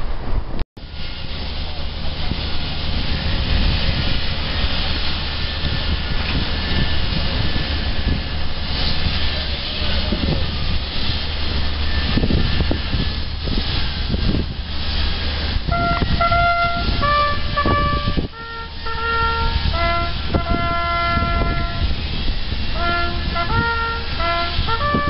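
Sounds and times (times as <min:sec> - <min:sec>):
steady low rumble: 0:00.0 - 0:25.0
bugle call on brass instrument: 0:15.7 - 0:21.8, 0:22.8 - 0:25.0.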